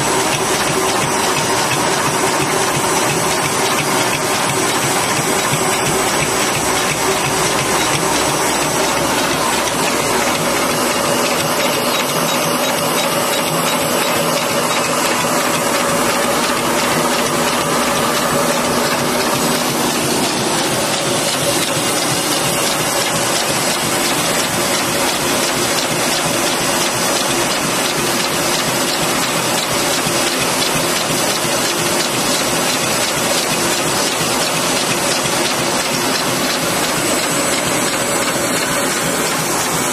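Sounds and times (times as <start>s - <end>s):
machine hum: 0.0s - 29.9s, 32.3s - 39.9s
packing machine clattering: 0.0s - 39.9s.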